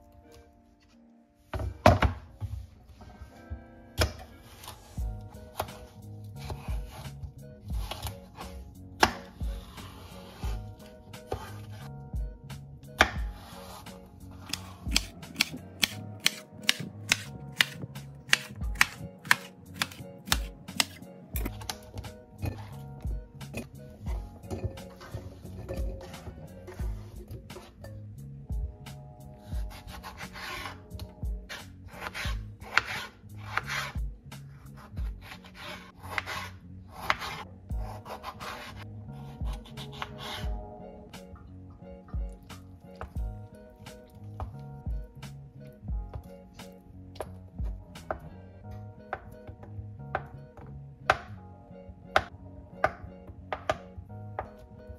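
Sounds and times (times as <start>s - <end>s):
calm hip-hop music: 0.0s - 54.9s
knife chopping on wooden board: 9.0s - 9.4s, 13.0s - 13.5s, 14.4s - 21.8s, 31.5s - 34.0s, 34.8s - 38.8s, 51.1s - 51.3s, 52.2s - 53.8s
knife tapping cutting board: 14.5s - 21.0s.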